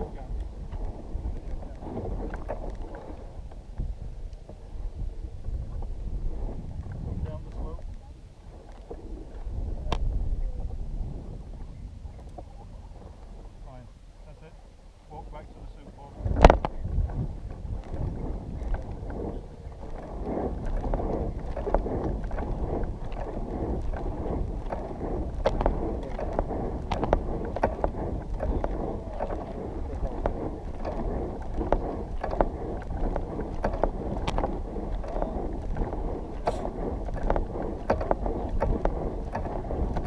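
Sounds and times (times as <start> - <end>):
wind buffeting microphone: 0.0 - 40.0
sharp clicks and knocks: 19.9 - 40.0.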